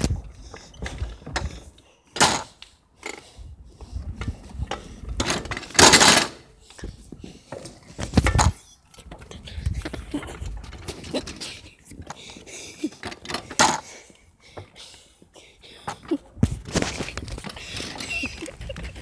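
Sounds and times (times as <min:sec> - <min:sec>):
tyres rumbling on concrete: 0:04.2 - 0:13.9
metal frame knocking and rattling: 0:04.7 - 0:06.4.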